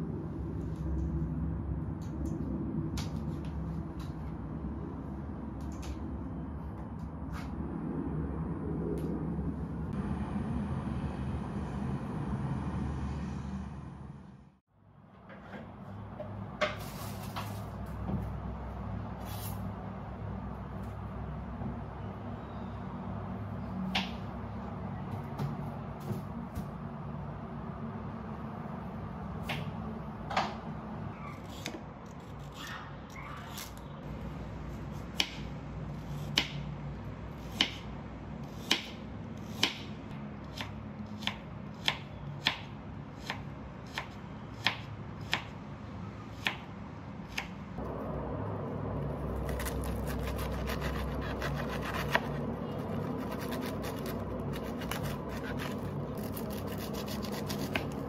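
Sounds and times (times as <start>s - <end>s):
knife crunching through cabbage: 49.4s - 58.0s.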